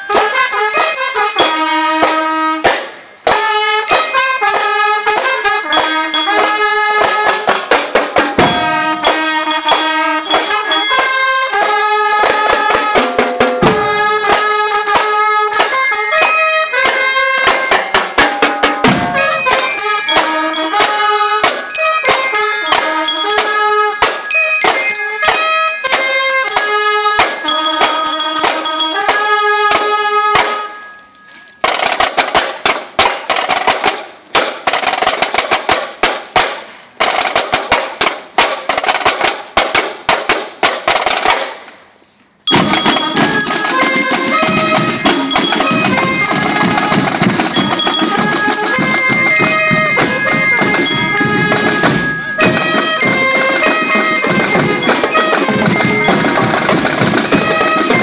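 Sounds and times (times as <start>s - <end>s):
bell lyres melody: 0.0s - 2.2s, 3.3s - 7.6s, 8.3s - 32.0s, 42.5s - 58.0s
snare and tenor drums cadence: 1.4s - 30.7s, 31.6s - 41.7s.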